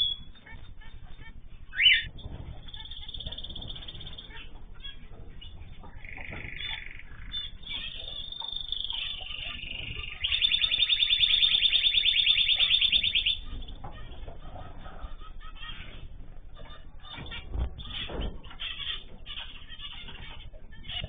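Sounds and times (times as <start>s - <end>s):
fast bird trill: 0.0s - 0.5s, 1.1s - 13.8s
songbirds chirping and singing: 0.0s - 21.0s.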